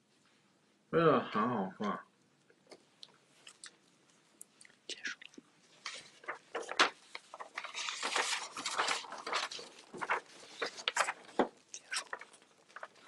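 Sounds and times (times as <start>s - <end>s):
wet chewing clicks and smacks: 2.4s - 5.5s.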